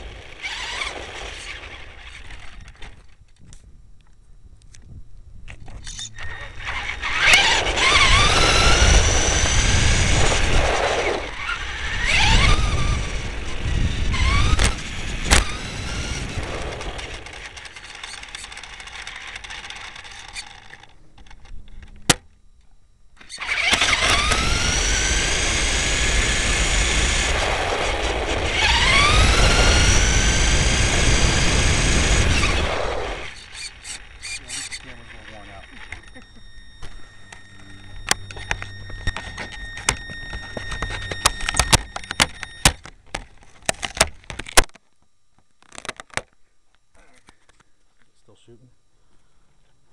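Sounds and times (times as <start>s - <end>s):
rc car motor whining: 0.0s - 3.2s, 5.6s - 22.1s, 23.2s - 42.9s.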